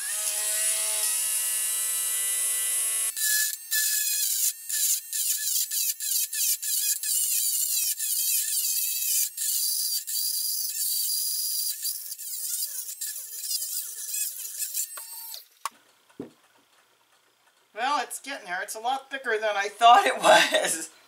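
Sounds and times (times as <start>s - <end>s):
rotary tool grinding ceramic: 0.0s - 15.6s
rotary tool whining: 0.0s - 17.6s.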